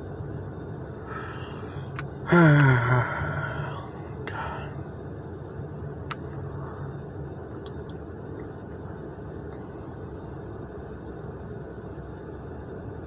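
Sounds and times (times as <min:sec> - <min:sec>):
car interior hum and hiss: 0:00.0 - 0:13.0.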